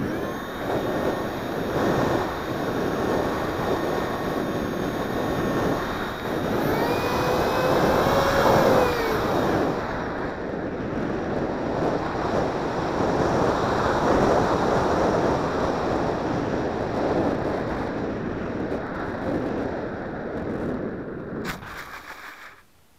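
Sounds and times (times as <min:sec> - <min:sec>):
electric ducted fan whining: 0:00.0 - 0:16.9
wind rushing over microphone: 0:00.0 - 0:21.8.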